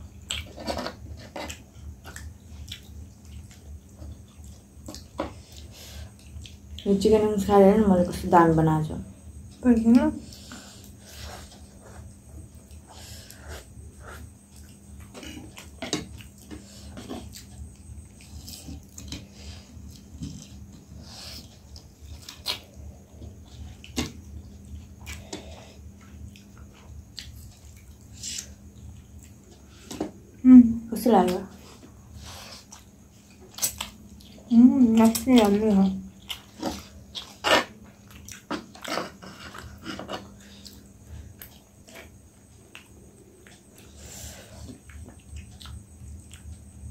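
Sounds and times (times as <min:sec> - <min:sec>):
faint steady hum: 0:00.0 - 0:46.9.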